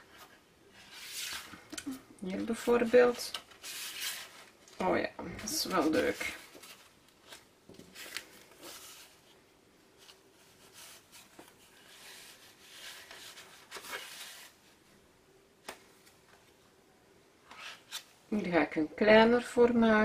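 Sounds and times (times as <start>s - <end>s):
paper rustling and sliding: 0.0s - 1.7s, 2.5s - 9.4s, 10.0s - 14.8s.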